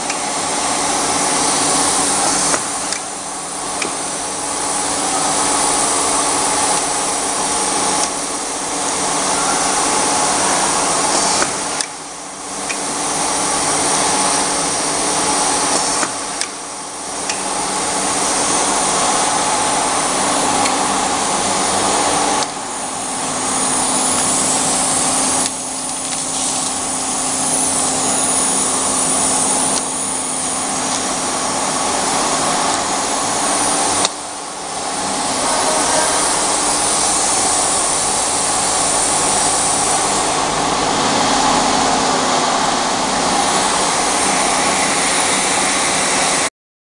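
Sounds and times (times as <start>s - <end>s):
machinery hum and whirring hiss: 0.0s - 46.5s.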